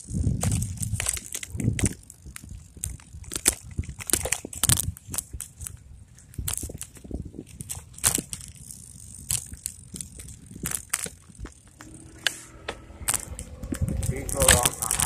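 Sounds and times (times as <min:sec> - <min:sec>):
microphone crackling and buffeting: 0:00.0 - 0:15.0
wind gusts rumbling: 0:09.8 - 0:15.0.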